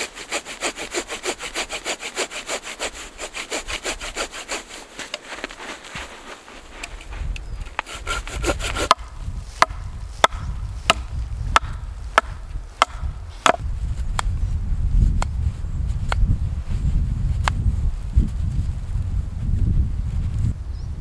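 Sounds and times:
hand saw cutting wood: 0.0s - 13.6s.

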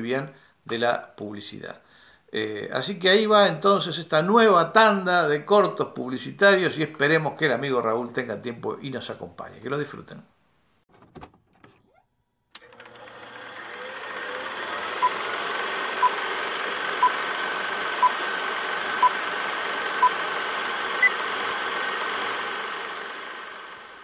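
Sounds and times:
film projector running: 12.6s - 24.0s.

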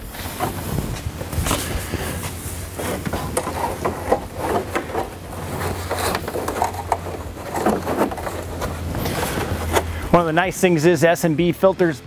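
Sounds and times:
rustling and scuffing of pad: 0.0s - 6.6s
steady low hum: 0.0s - 12.0s.

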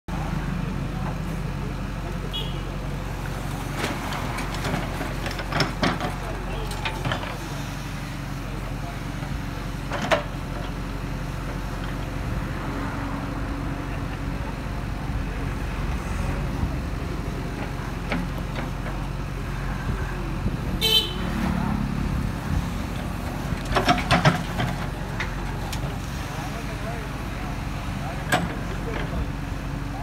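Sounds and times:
diesel engine under load: 0.1s - 30.0s
horn toot: 20.8s - 21.3s.

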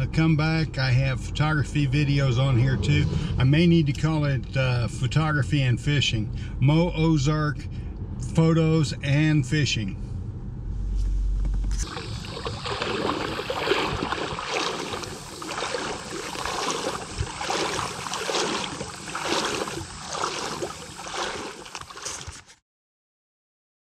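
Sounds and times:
vehicle cabin rumble: 0.0s - 22.6s
water splashing while wading: 11.7s - 22.6s.

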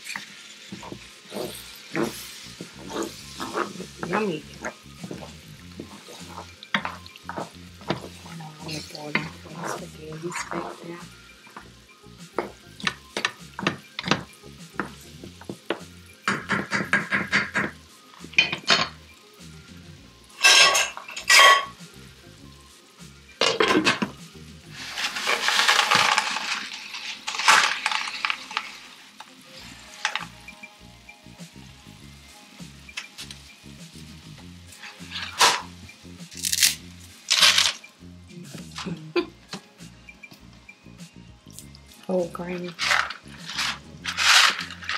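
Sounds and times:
wooden spoon scraping a skillet: 0.0s - 11.0s, 24.7s - 30.4s, 34.7s - 35.7s, 42.6s - 44.9s
ringing metal clanks of pots: 20.4s - 21.8s.

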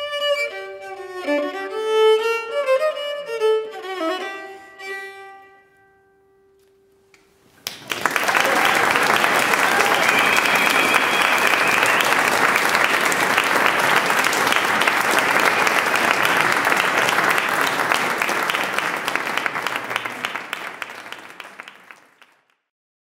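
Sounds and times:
audience applauding: 7.6s - 22.6s.

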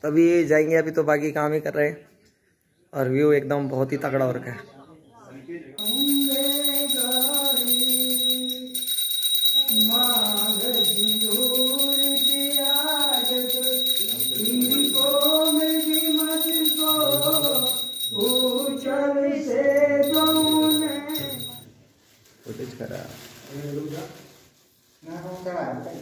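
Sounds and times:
steady high-pitched tone: 5.8s - 19.0s, 19.8s - 21.6s
person singing devotional song: 5.8s - 21.6s.

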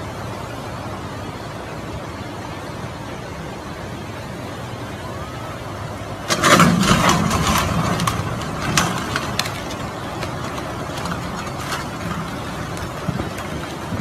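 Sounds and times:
floodwater rushing: 0.0s - 14.0s
wood snapping: 6.3s - 14.0s
wooden bridge cracking and crashing: 6.3s - 14.0s.

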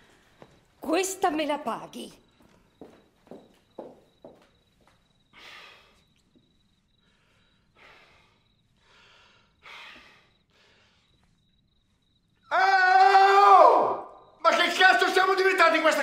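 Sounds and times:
man breathing heavily: 5.1s - 11.5s
man shouting: 12.5s - 16.0s.

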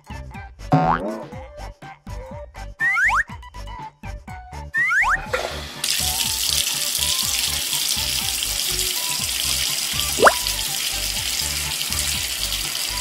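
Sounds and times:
background music: 0.0s - 13.0s
tap water filling bathtub: 5.3s - 13.0s
short rising whistle: 10.2s - 10.6s.

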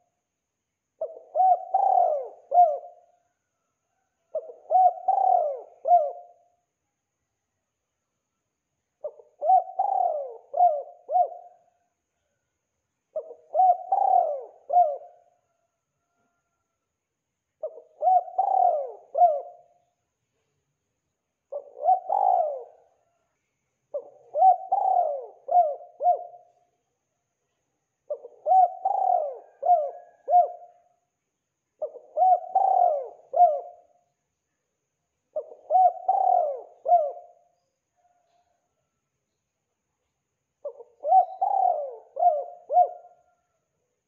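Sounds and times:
dove cooing: 1.0s - 3.2s, 3.9s - 6.6s, 9.0s - 11.8s, 13.1s - 15.6s, 17.6s - 19.9s, 21.5s - 23.2s, 23.9s - 26.6s, 28.1s - 30.9s, 31.8s - 34.0s, 35.3s - 38.6s, 40.6s - 43.6s.

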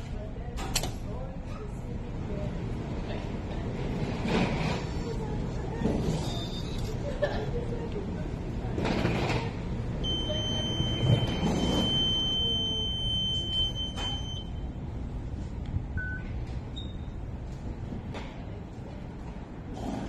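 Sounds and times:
short low card reader beep: 10.0s - 14.7s, 16.0s - 17.2s
long high-pitched machine beep: 10.0s - 14.8s.

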